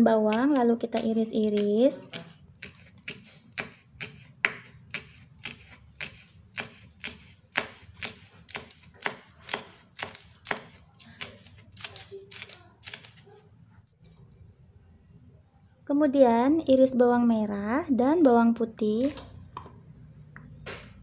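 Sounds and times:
knife chopping on wooden board: 0.3 - 13.2.

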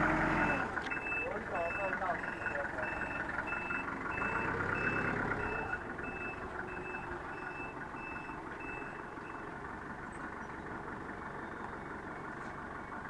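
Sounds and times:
forklift engine running: 0.0 - 13.0
forklift reversing alarm beeping: 0.2 - 10.4.

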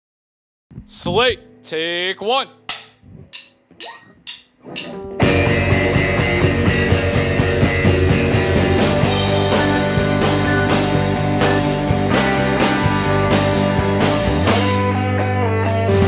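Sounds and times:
rock band playing: 4.2 - 16.0.

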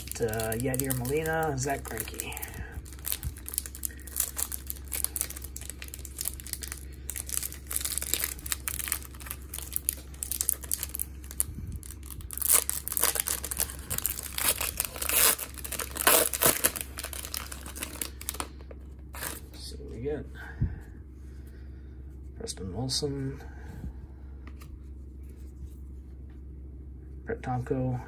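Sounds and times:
foil wrapper tearing and crinkling: 0.0 - 19.5.

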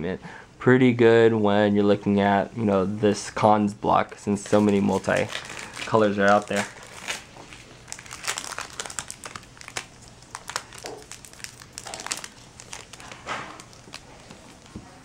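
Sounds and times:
foil wrapper crinkling: 4.1 - 15.0.

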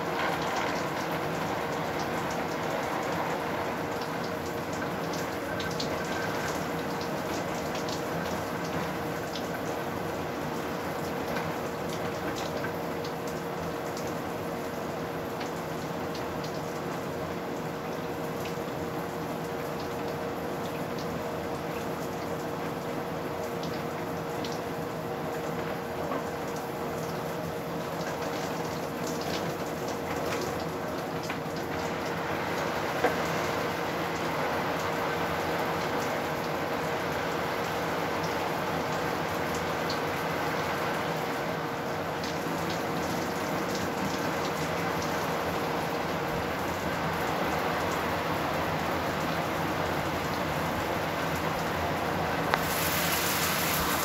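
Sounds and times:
faint constant hum: 0.0 - 54.0
steady hiss: 52.2 - 54.0.

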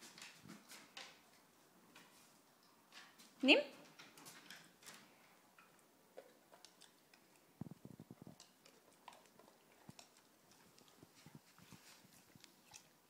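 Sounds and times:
dog claws clicking on wooden floor: 0.0 - 7.6.

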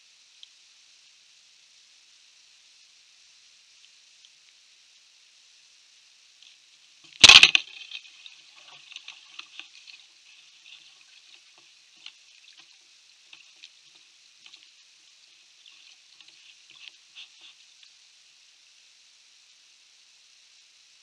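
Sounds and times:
faint crackling ticks: 0.3 - 0.6, 3.7 - 4.7, 6.3 - 18.1.

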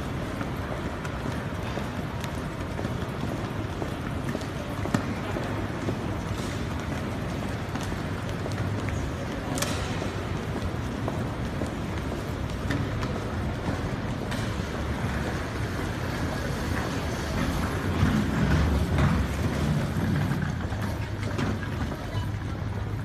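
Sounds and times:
suitcases rolling over hard floor: 0.0 - 23.0.

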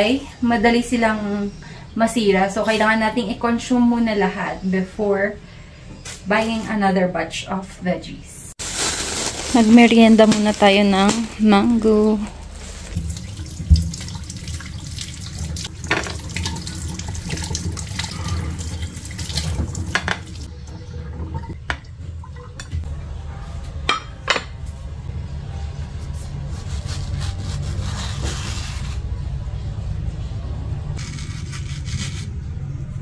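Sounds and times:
tap water running in sink: 12.8 - 21.9.

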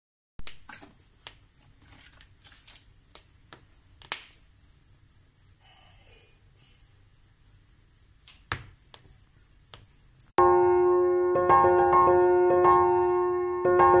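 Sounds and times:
firewood crackling and popping: 0.4 - 4.4.

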